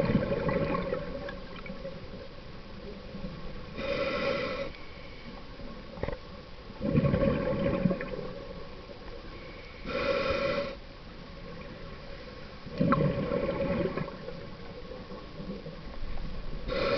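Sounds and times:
exhaled bubbles gurgling: 0.0s - 2.3s, 6.8s - 9.0s, 12.6s - 16.9s
regulator inhalation hiss: 3.8s - 5.4s, 9.3s - 10.8s, 16.7s - 16.9s.

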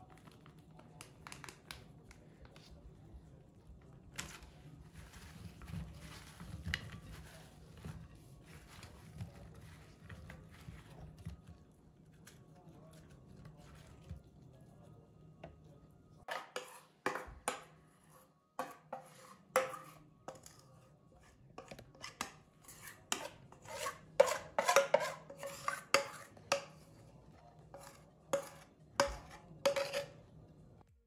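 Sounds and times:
metal spoon scraping a bowl: 16.3s - 30.4s.

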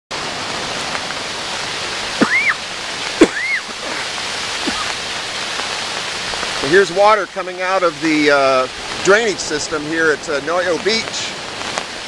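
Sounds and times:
water rushing down rocks: 0.1s - 12.0s
loud rising and falling call: 2.2s - 4.9s.

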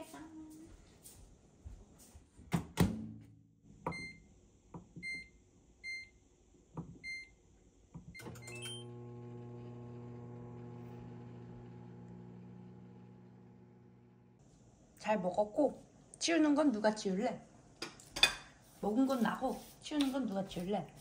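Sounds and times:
fan humming: 8.7s - 14.4s.

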